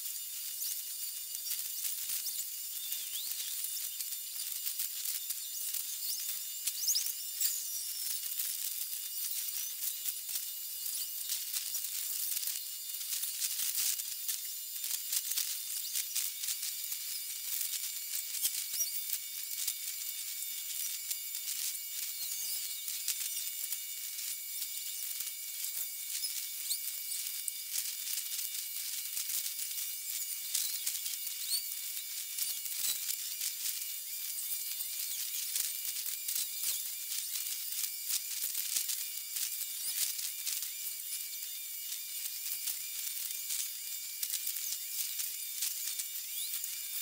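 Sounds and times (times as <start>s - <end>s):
crackling clicks: 0.0s - 41.2s, 41.9s - 47.0s
high-pitched hiss: 0.0s - 47.0s
thin whistling tones: 0.4s - 10.2s, 15.2s - 19.6s, 20.6s - 27.5s, 29.7s - 33.4s.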